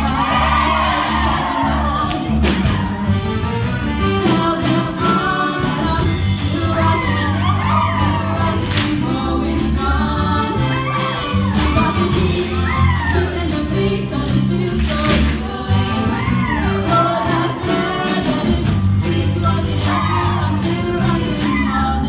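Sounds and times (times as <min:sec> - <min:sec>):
instrumental accompaniment with bass line: 0:00.0 - 0:22.0
cast singing: 0:04.2 - 0:22.0.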